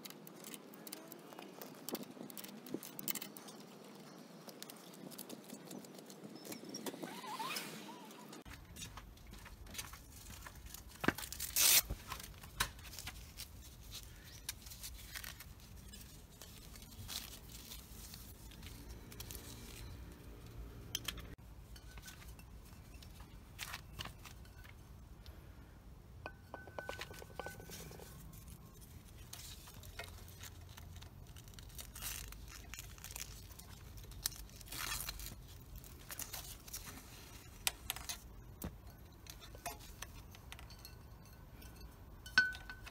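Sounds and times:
clicks and rustles: 0.0 - 20.0, 26.2 - 42.9
hook-and-loop strap ripping: 10.2 - 20.0, 29.1 - 38.2.

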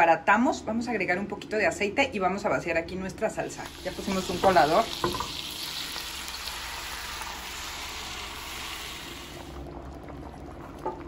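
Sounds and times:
meat sizzling in hot oil: 3.6 - 9.6
sauce bubbling: 3.6 - 11.0.

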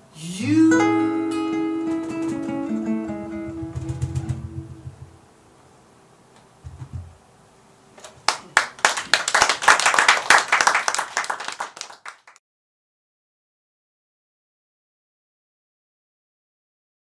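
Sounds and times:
short low thump: 3.6 - 5.2
audience clapping: 8.1 - 12.4.

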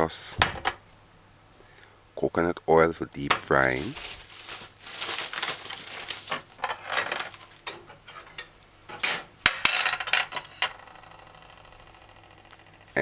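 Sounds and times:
ingredients rustling: 3.4 - 8.4.

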